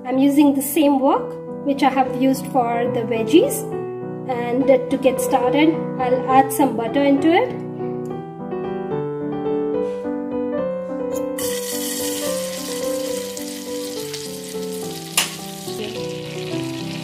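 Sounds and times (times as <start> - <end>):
keyboard music: 1.6 - 17.0
butter sizzling in a wok: 11.4 - 17.0.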